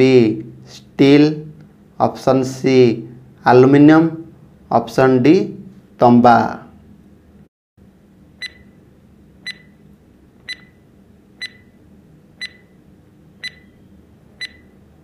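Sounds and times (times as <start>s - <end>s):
high electronic ticks: 9.4s - 9.7s, 11.4s - 11.6s, 12.4s - 12.7s, 13.4s - 13.7s.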